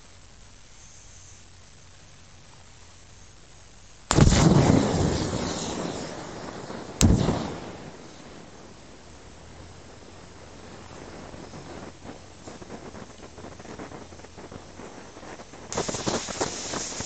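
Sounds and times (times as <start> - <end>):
gas rushing noise: 4.0 - 17.0
lighter bursting bang: 4.1 - 8.0.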